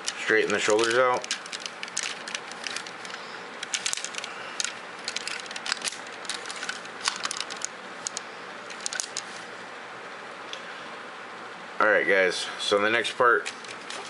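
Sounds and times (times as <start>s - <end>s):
plastic toy parts clicking: 0.0s - 9.2s.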